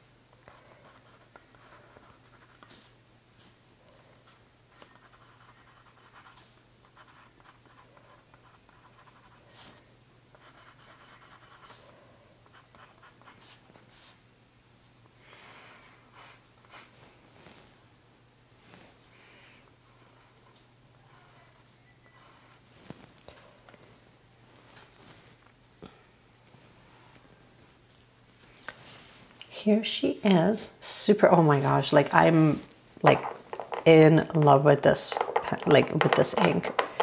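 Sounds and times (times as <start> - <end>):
pen nib scratching paper: 0.5 - 2.9, 4.8 - 9.7, 10.4 - 11.8, 12.5 - 13.6.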